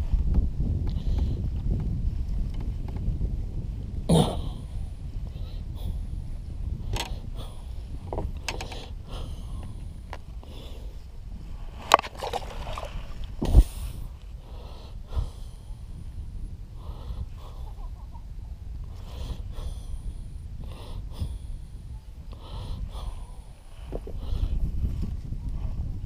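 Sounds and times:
heavy breathing: 7.0 - 11.0, 18.9 - 24.8.

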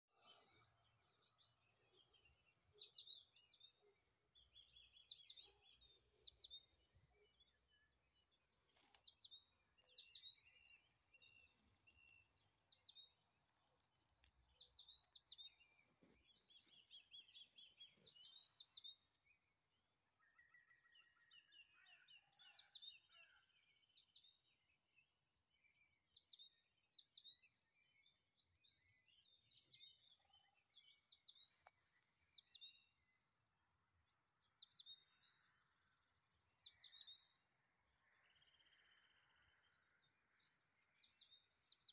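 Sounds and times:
faint songbirds singing: 0.0 - 41.9.

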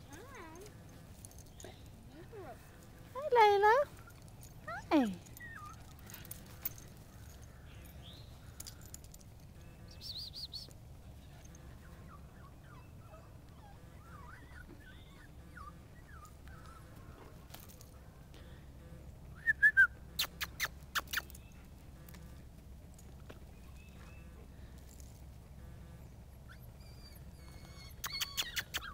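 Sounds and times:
birds chirping and trilling: 0.0 - 17.2, 23.5 - 28.9.

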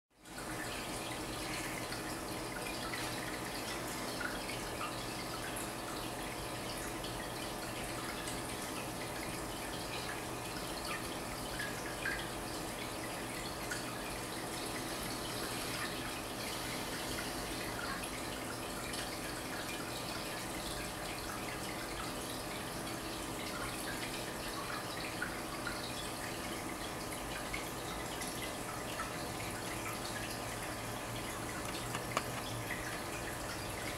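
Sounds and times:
water trickling in aquarium: 0.2 - 33.9
water drips and bubble pops: 31.4 - 33.4.

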